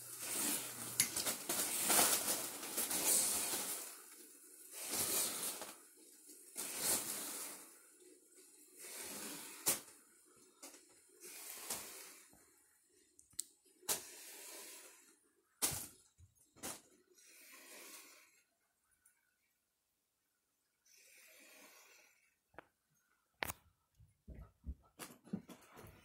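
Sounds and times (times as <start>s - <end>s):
fan blades swishing foil balloons: 0.0s - 12.4s.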